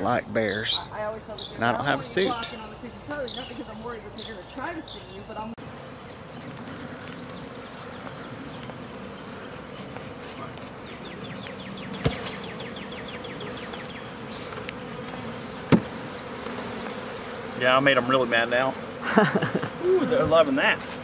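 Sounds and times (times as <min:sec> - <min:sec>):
bees buzzing in a swarm: 0:00.0 - 0:21.0
knock on wooden box: 0:15.7 - 0:15.9.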